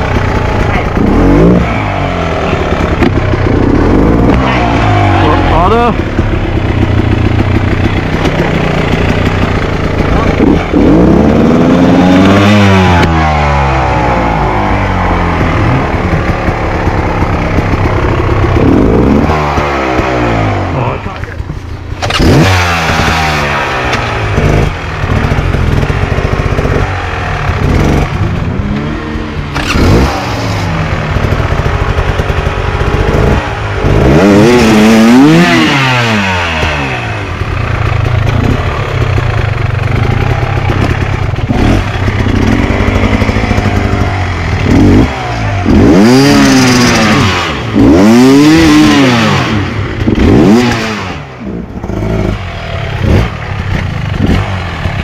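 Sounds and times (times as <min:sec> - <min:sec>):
dirt bike engine revving: 0:00.0 - 0:21.2, 0:22.0 - 0:55.0.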